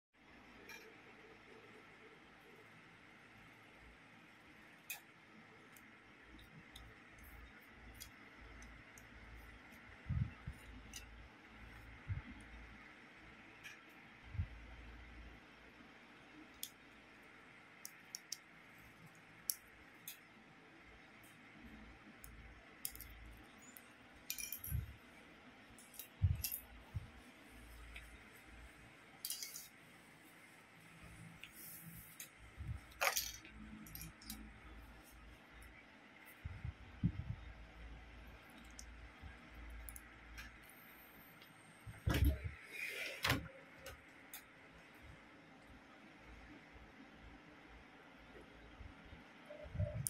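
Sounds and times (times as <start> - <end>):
plastic bricks clattering on tile: 29.3 - 29.7.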